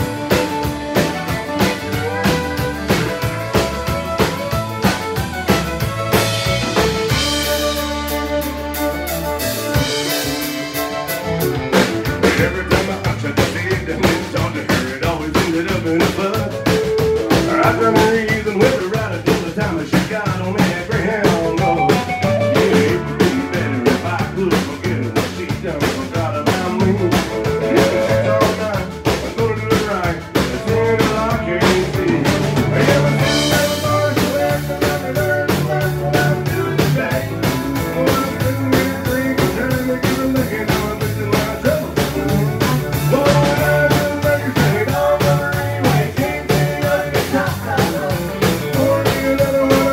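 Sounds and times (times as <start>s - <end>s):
pedal steel guitar: 0.0s - 25.1s, 26.2s - 49.9s
drums with rimshots: 0.0s - 49.9s
fiddle: 0.0s - 49.9s
guitars: 0.0s - 49.9s.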